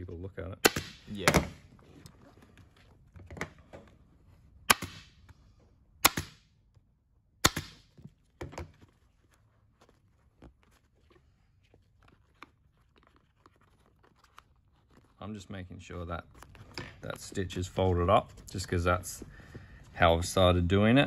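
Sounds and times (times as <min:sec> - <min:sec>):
vinyl handling: 0:08.0 - 0:15.2, 0:16.2 - 0:19.8.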